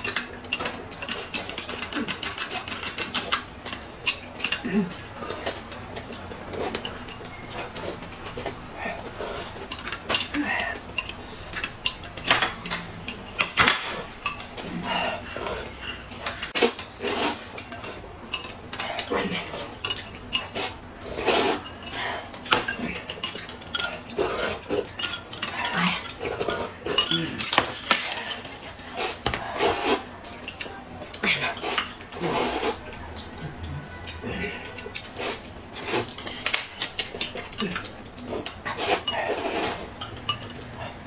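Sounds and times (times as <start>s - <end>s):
spoons clinking against glass cups: 9.4s - 14.6s, 34.8s - 41.0s
noodles being slurped: 13.8s - 18.2s, 19.0s - 30.3s, 31.1s - 40.0s.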